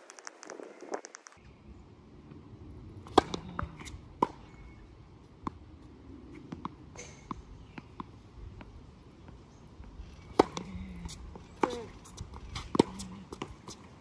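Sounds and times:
tennis ball bouncing on court: 3.1s - 4.5s, 10.2s - 13.9s.

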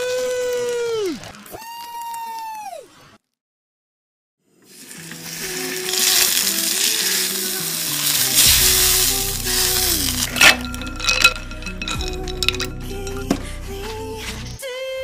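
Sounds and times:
steak sizzling in frying pan: 4.7s - 10.5s
background music: 4.9s - 15.0s.

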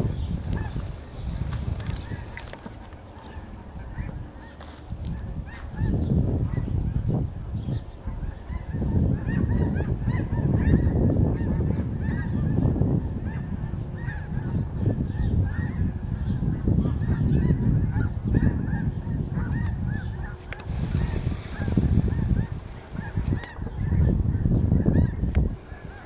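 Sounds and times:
geese honking in flight: 0.0s - 4.6s, 8.0s - 12.6s, 13.2s - 14.6s, 15.2s - 24.1s, 24.9s - 26.0s
steady low rumble: 19.3s - 26.0s.

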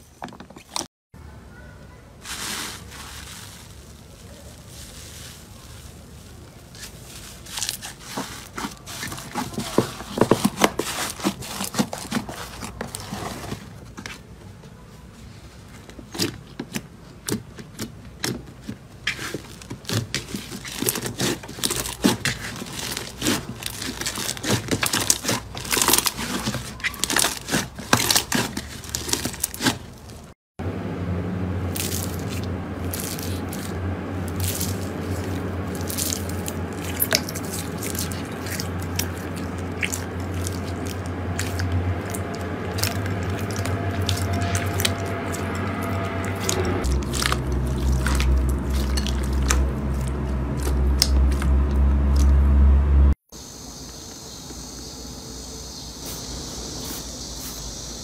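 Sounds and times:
slime crackling and popping: 19.1s - 29.9s, 31.7s - 45.6s, 46.4s - 52.3s
low hum: 30.6s - 53.2s.

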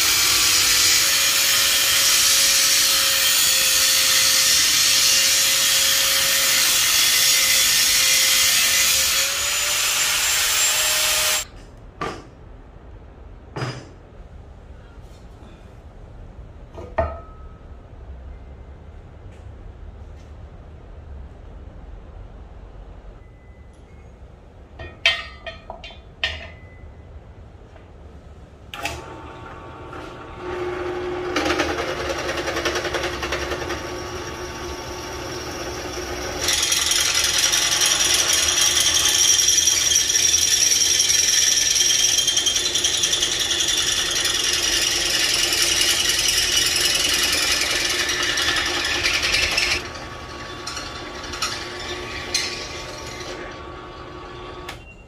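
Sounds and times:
drill press motor running: 28.8s - 54.8s
drill bit squealing in steel: 36.5s - 53.3s.

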